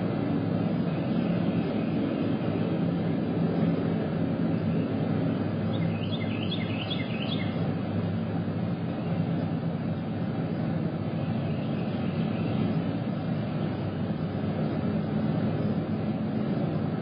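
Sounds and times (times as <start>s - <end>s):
distant engine drone: 0.0s - 17.0s
high bird chirps: 5.7s - 7.6s.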